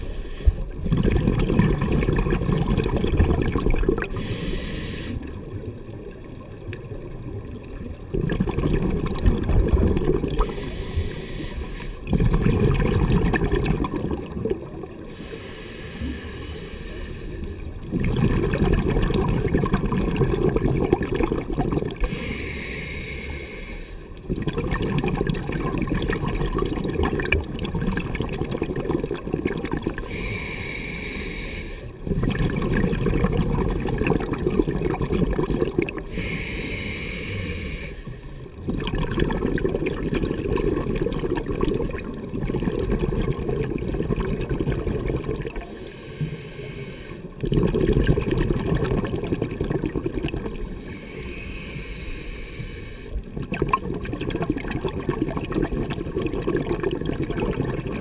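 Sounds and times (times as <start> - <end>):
regulator hiss on inhalation: 0.0 - 0.6, 4.1 - 5.3, 10.4 - 12.1, 15.1 - 17.7, 22.0 - 24.1, 30.0 - 32.0, 36.1 - 38.4, 45.6 - 47.4, 50.6 - 53.2
exhaled bubbles underwater: 0.0 - 58.0.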